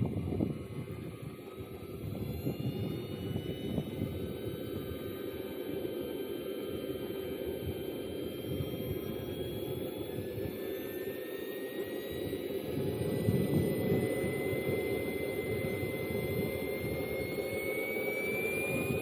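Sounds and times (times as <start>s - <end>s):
wind buffeting microphone: 0.0s - 4.2s
model jet turbine whine: 0.0s - 19.0s.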